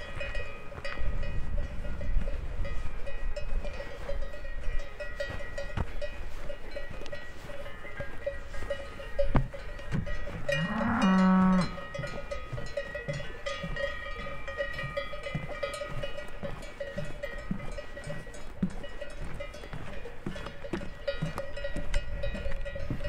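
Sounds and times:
cowbells clanking: 0.0 - 23.0
cow mooing: 10.5 - 11.8.

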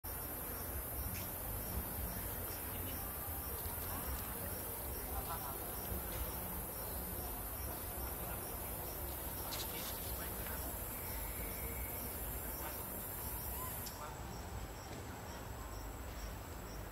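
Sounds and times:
cricket chirping: 0.0 - 16.9.

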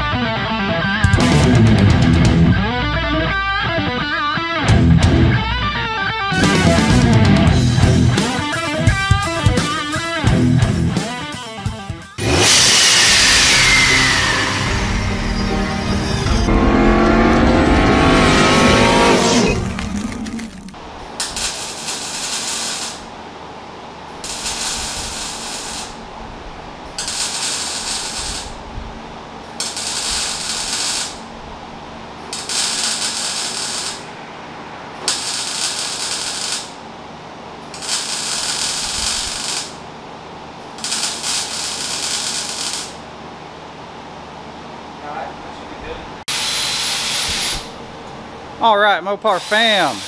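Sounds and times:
welder arc crackling hiss: 8.0 - 11.6, 19.7 - 23.1, 24.1 - 26.2, 26.8 - 31.4, 32.2 - 34.2, 34.9 - 36.8, 37.6 - 39.9, 40.6 - 43.1, 46.3 - 47.8, 49.2 - 50.0.

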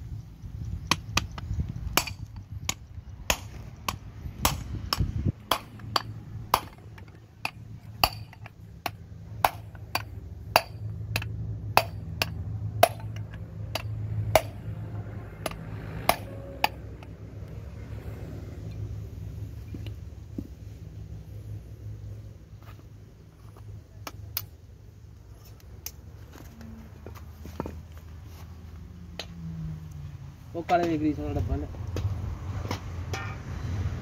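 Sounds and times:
hammer striking steel punch: 2.0 - 14.6.

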